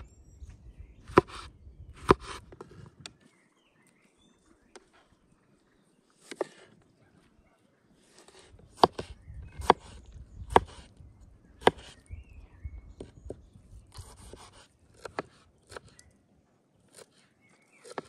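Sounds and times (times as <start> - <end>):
knife cutting tomatoes: 1.1 - 3.0, 6.2 - 6.8, 8.0 - 10.9, 11.6 - 12.0, 13.0 - 16.1, 16.9 - 18.0.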